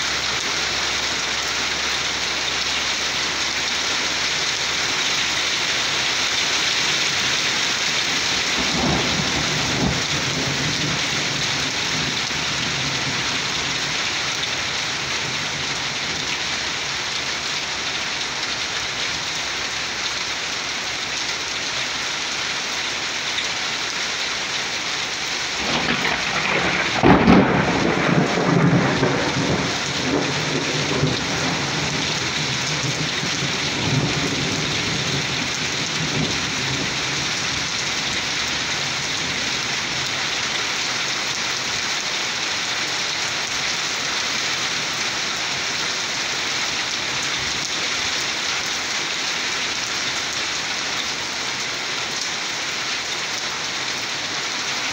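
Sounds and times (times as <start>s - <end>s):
steady rain: 0.0s - 54.9s
thunder rumbling: 7.1s - 15.7s, 25.5s - 38.4s
loud thunderclap: 8.5s - 13.4s, 25.6s - 35.2s.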